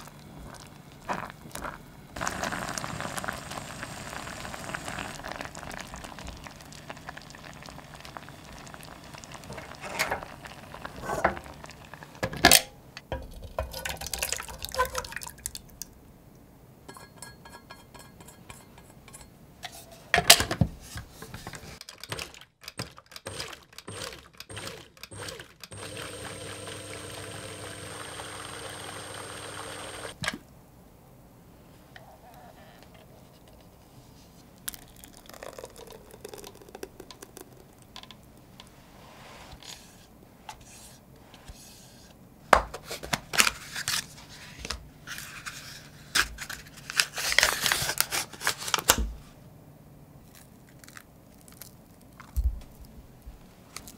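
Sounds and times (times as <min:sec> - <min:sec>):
thick puree pouring: 0:00.0 - 0:12.2, 0:13.7 - 0:15.8, 0:34.5 - 0:38.6
blender motor running: 0:02.2 - 0:05.4, 0:23.3 - 0:30.2
plastic seal crinkling and tearing: 0:46.2 - 0:49.0.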